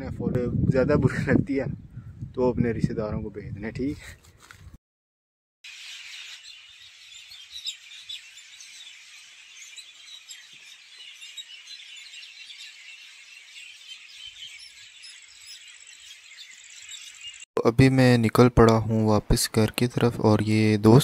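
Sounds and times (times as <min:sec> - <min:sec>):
small birds chirping: 0:05.6 - 0:17.5.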